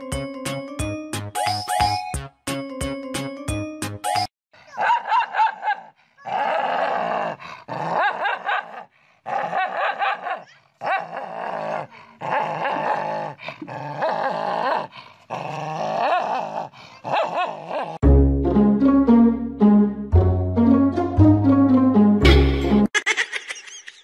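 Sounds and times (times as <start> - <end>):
music: 0.0 - 4.3, 18.0 - 22.9
dog barking: 4.6 - 6.4, 8.0 - 11.0
dog snarling and growling: 6.2 - 18.0.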